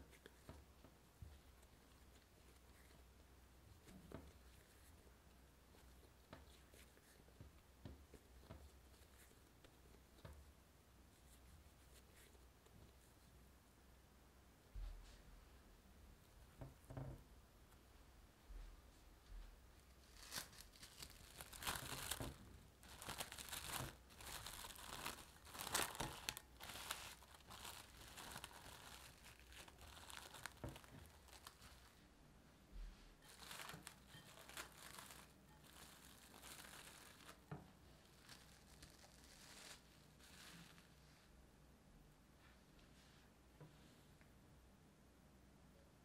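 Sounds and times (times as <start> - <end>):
cling wrap crinkling: 19.9 - 32.0, 33.2 - 41.0.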